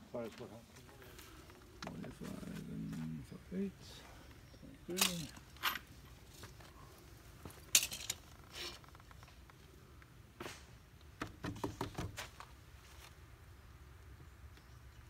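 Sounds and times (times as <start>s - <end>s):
tools and lumber clinking: 4.8s - 6.5s, 7.4s - 9.4s.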